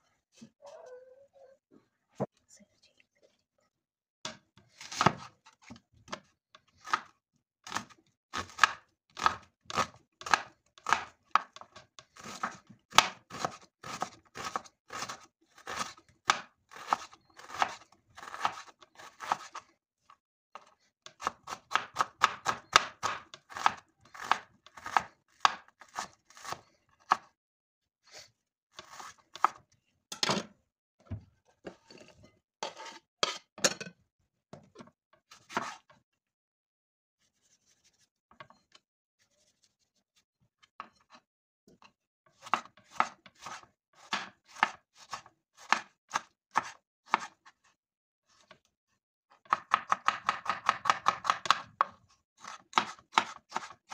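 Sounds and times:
knife chopping on wooden board: 7.7s - 19.5s, 21.2s - 27.3s, 42.4s - 47.4s, 49.5s - 53.9s.

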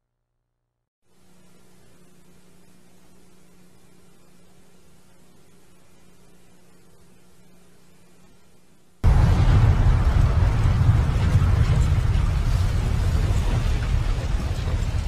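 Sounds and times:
heavy rumbling roar: 9.0s - 15.0s
model airliner crashing: 9.0s - 15.0s.

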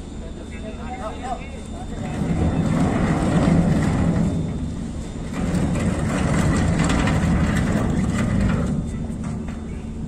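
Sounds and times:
heavy engine rumbling: 0.0s - 10.0s.

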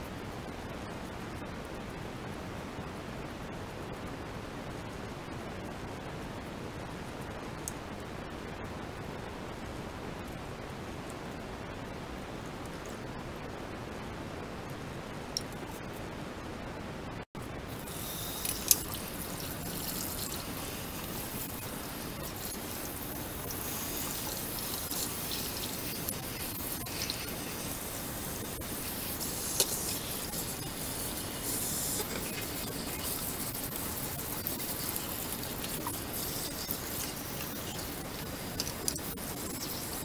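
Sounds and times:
tap water running and splashing: 17.8s - 40.0s.

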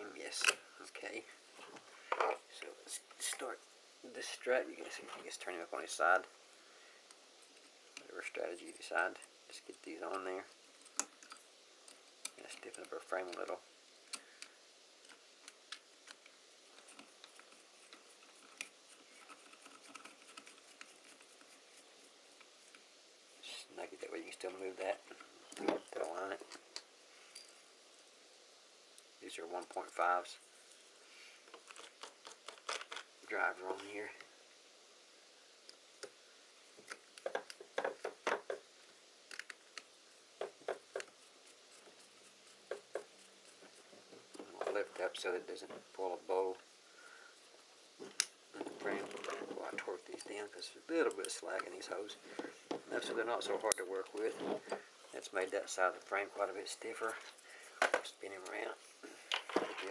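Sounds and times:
small screws and parts clicking: 8.7s - 23.0s, 31.5s - 33.9s, 36.8s - 45.2s
light clicks and knocks: 36.8s - 38.7s.

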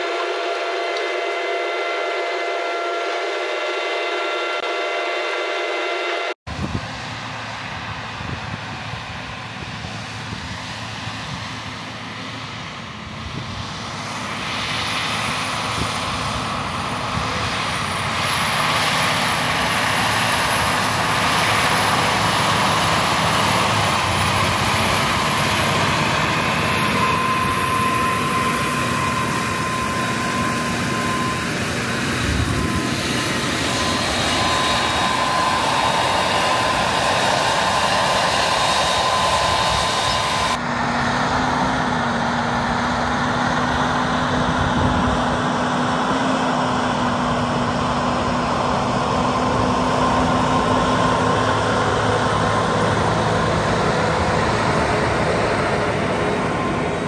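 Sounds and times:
thin high whine: 0.0s - 42.1s
tractor diesel engine running: 6.5s - 57.0s.

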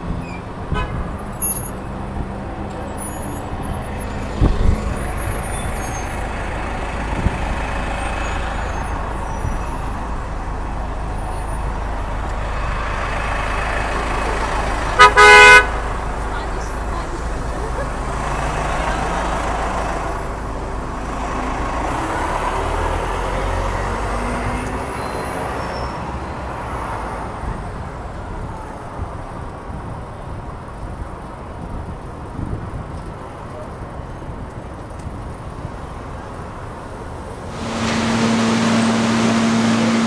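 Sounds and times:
bus engine pulling away: 0.0s - 40.0s
street traffic noise: 0.0s - 40.0s
subway train low hum: 37.4s - 40.0s.

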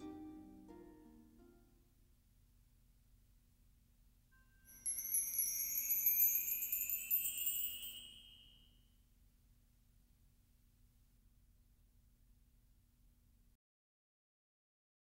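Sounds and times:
shimmering chime rising in pitch: 4.6s - 8.7s.

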